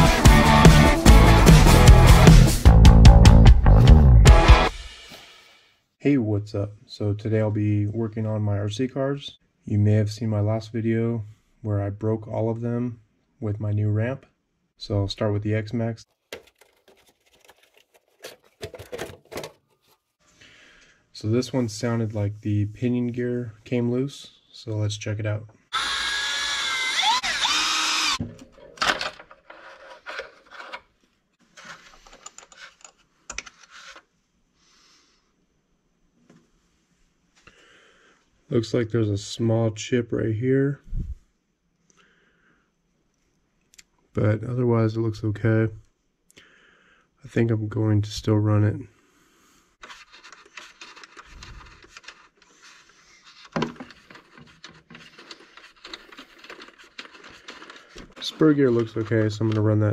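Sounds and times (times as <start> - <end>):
plastic parts clicking and rubbing: 16.1 - 20.0, 28.2 - 34.1, 49.8 - 59.9
cordless screwdriver whining: 25.7 - 28.2.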